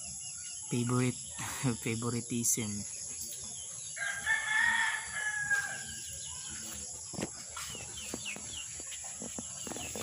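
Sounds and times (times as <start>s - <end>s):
insects chirring: 0.0s - 10.0s
rooster crowing: 4.0s - 6.1s.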